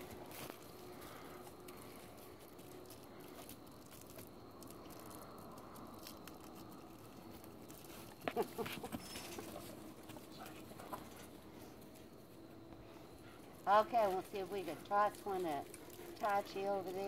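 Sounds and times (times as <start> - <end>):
candy wrapper crinkling: 0.2 - 8.2.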